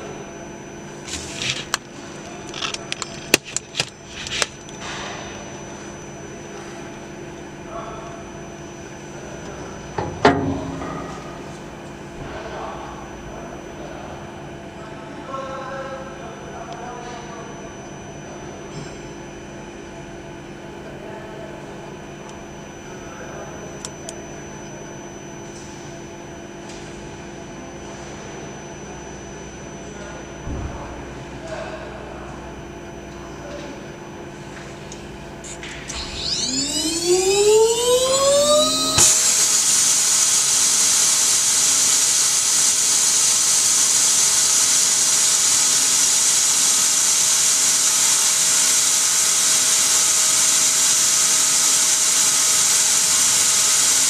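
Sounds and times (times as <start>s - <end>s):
machine humming: 34.9s - 54.0s.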